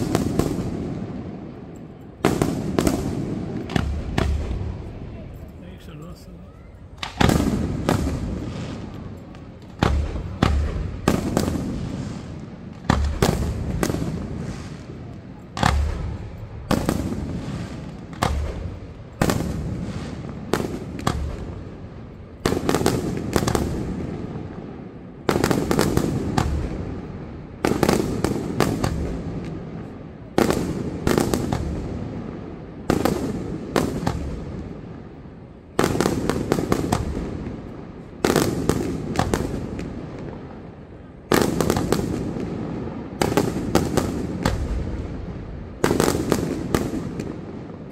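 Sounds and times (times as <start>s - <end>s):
low rolling echo: 0.0s - 41.3s.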